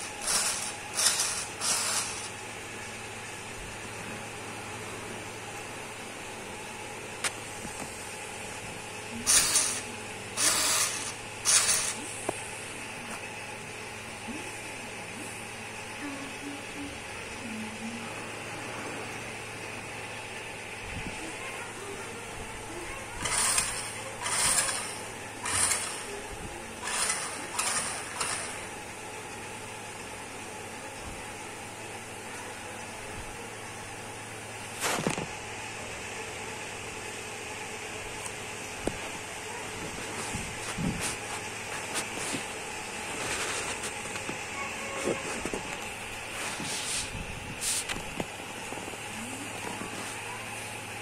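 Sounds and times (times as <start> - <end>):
small electric motors grinding: 0.0 - 2.4, 9.1 - 12.1, 23.2 - 26.2, 26.8 - 28.8.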